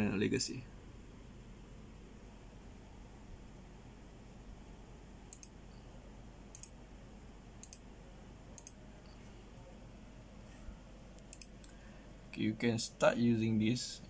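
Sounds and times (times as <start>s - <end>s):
steady low hum: 0.0s - 14.0s
computer mouse clicks: 5.3s - 5.6s, 6.5s - 6.8s, 7.6s - 7.9s, 8.6s - 9.2s, 11.1s - 11.8s.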